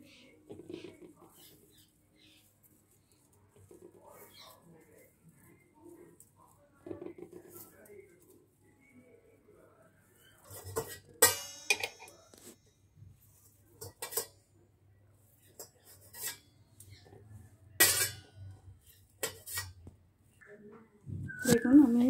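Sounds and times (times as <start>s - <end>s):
knife clinking on steel plate: 10.5s - 12.2s, 17.8s - 18.3s.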